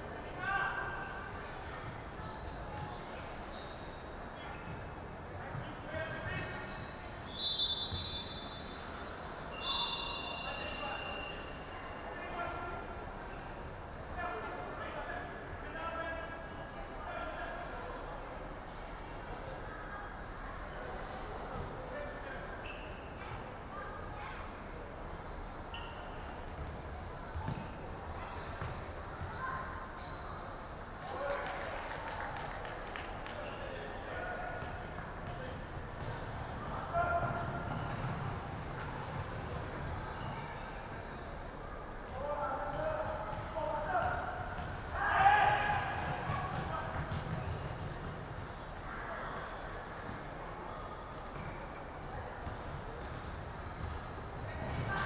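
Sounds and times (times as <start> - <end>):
faint players' voices: 0.0 - 55.0
sneaker squeaks: 0.4 - 20.2, 20.8 - 31.3, 33.3 - 55.0
basketball bounce: 27.4 - 27.7, 42.7 - 44.8, 46.0 - 48.1.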